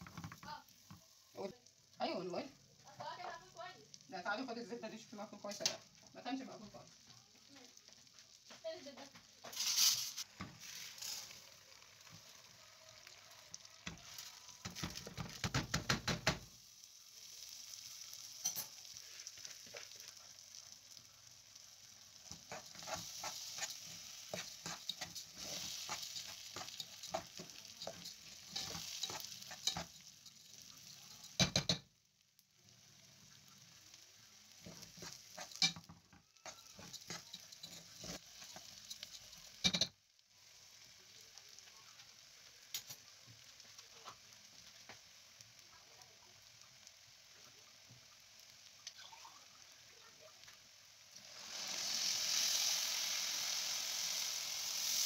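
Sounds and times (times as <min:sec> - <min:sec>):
butter sizzling: 0:00.0 - 0:55.0
grains scraping against pot: 0:08.9 - 0:11.6, 0:17.2 - 0:21.0, 0:21.8 - 0:31.8, 0:33.2 - 0:39.8, 0:51.1 - 0:55.0
grains rattling into metal pot: 0:09.4 - 0:11.5, 0:22.2 - 0:31.8, 0:34.6 - 0:39.9.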